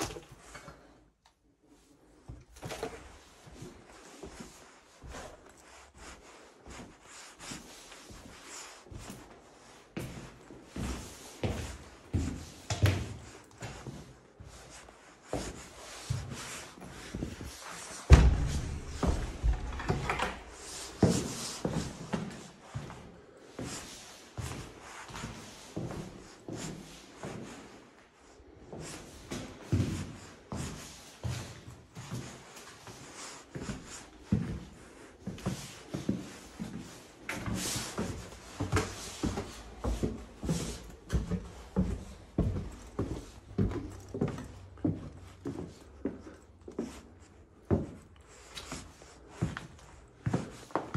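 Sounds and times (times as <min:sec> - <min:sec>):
footsteps and shuffling: 0:00.0 - 0:50.9
footsteps on wooden stairs: 0:15.3 - 0:23.0, 0:29.3 - 0:46.9
wooden door thump: 0:18.1 - 0:20.8.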